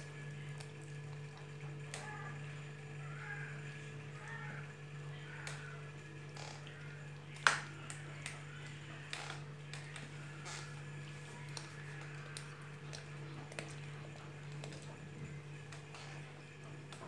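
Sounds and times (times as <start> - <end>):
steady low hum: 0.0 - 17.0
kittens eating clicks: 4.1 - 17.0.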